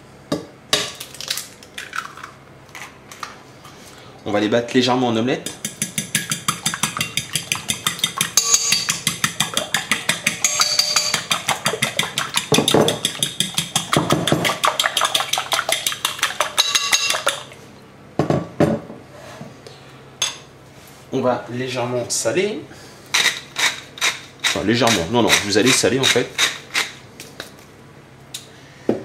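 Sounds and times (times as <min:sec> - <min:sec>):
fork clinking against glass bowl: 0:05.6 - 0:11.4, 0:16.6 - 0:17.3.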